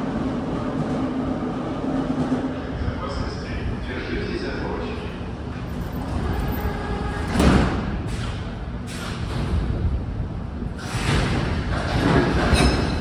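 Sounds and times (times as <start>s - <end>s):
train rumble: 0.0s - 13.0s
train sliding doors banging shut: 5.6s - 10.0s, 10.6s - 13.0s.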